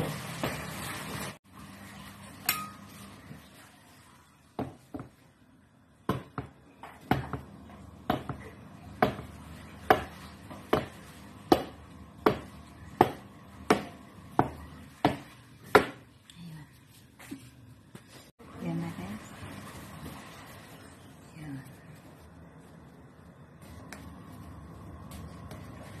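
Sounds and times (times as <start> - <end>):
knife chopping on wooden board: 9.9 - 16.0.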